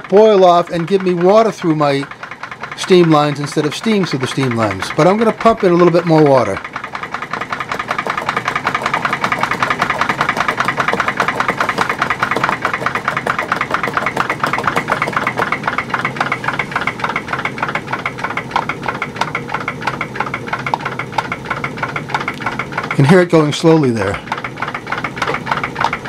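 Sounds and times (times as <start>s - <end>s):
steam engine running: 0.0s - 26.0s.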